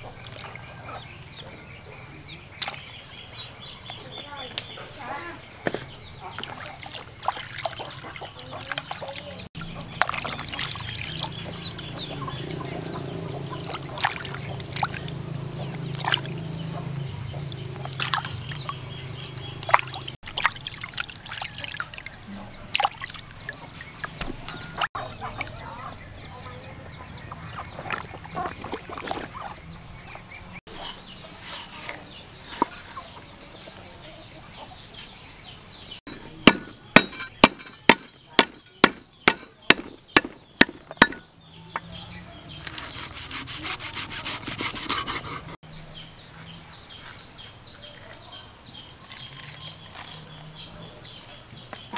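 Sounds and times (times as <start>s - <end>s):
water splashing in a basin: 6.4s - 12.6s, 13.6s - 16.5s, 17.5s - 18.8s, 19.6s - 25.8s, 27.3s - 29.6s
knife cutting on wooden board: 42.7s - 45.6s.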